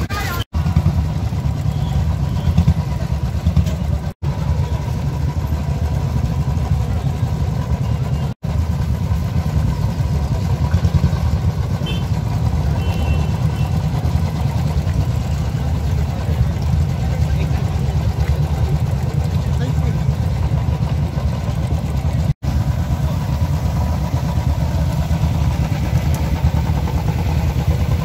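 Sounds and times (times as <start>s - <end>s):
crowd voices: 0.0s - 8.6s, 10.2s - 28.0s
motorcycle engines idling: 0.0s - 28.0s.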